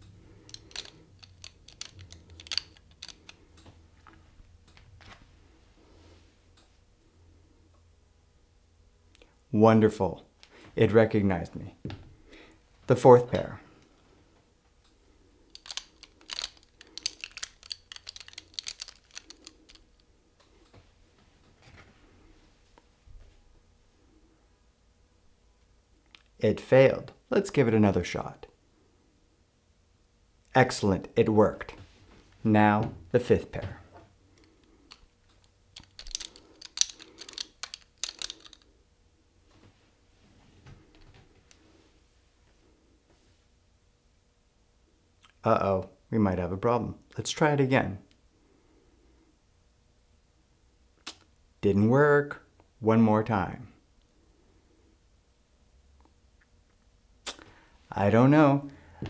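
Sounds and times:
plastic eyeglass frames clicking: 0.4 - 3.4, 15.5 - 20.0, 34.4 - 38.7.

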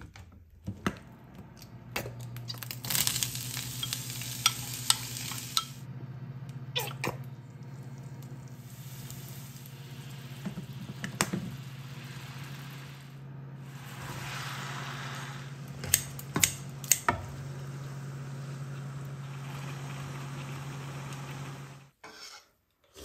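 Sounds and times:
steady low hum: 1.0 - 21.9
oil sizzling in a wok: 2.5 - 5.9, 7.7 - 15.9.

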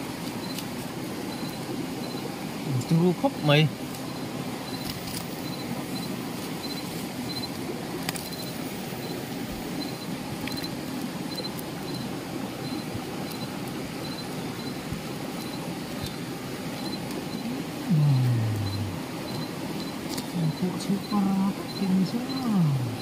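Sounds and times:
river water rushing: 0.0 - 23.0
faint high chirp: 1.3 - 2.3, 3.4 - 7.6.

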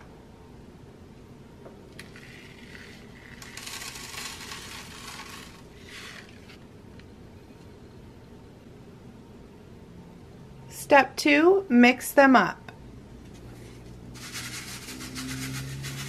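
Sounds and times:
sand pouring onto paper plate: 2.0 - 6.5, 14.2 - 16.0.

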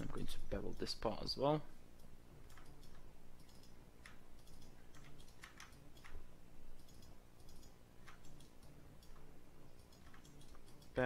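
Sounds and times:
low background hum: 0.0 - 11.0
mouse and keyboard clicks: 2.0 - 6.2, 6.8 - 11.0.

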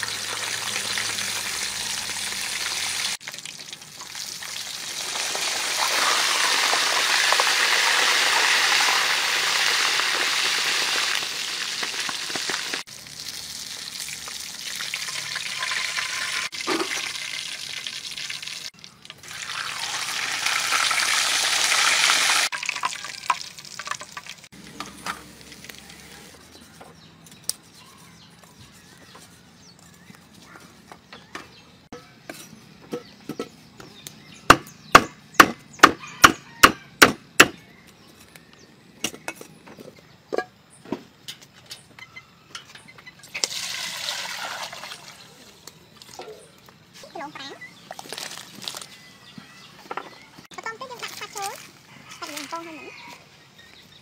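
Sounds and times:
water pouring into a pot: 0.0 - 24.5, 43.3 - 45.4
pork sizzling in hot oil: 0.0 - 26.1, 43.2 - 45.2
cleaver chopping on wooden block: 34.5 - 37.6.

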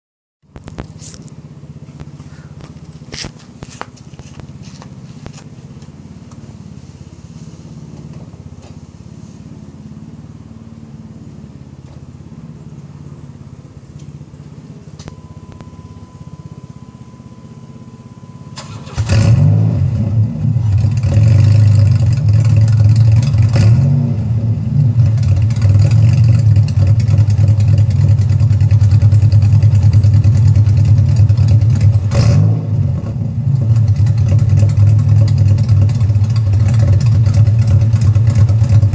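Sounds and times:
car engine starting and idling: 0.5 - 38.9
faint low hum: 14.8 - 19.0
thin steady tone: 15.1 - 18.8.

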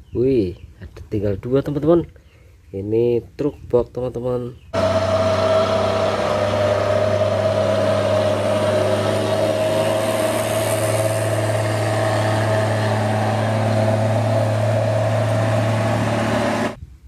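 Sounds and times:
truck diesel engine droning: 4.8 - 16.8.

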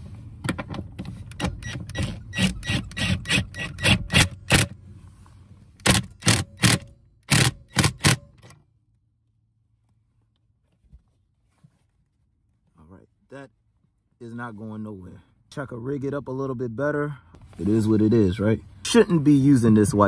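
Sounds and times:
impact wrench bursts: 1.4 - 4.8, 5.8 - 8.5.

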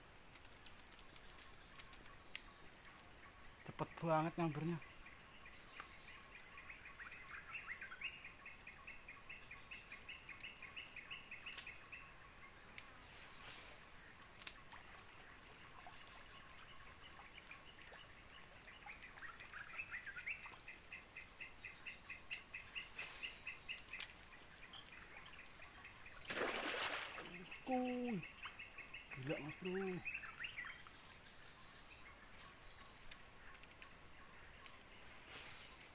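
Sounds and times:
faint clicks: 0.2 - 2.6, 12.7 - 12.9, 14.3 - 14.8, 23.7 - 24.3, 33.0 - 34.0, 34.6 - 34.8
high-pitched insect drone: 26.4 - 33.0.

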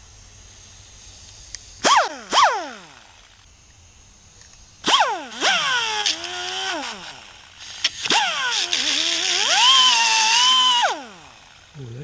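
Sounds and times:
pneumatic angle grinder whining: 1.8 - 3.5, 4.8 - 11.8
grinder disc grinding metal: 4.8 - 11.7.

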